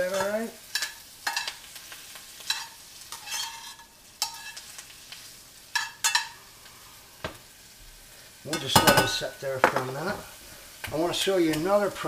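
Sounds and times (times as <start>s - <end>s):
utensil scraping skillet: 0.0s - 7.4s
mushrooms sizzling in butter: 0.0s - 12.0s.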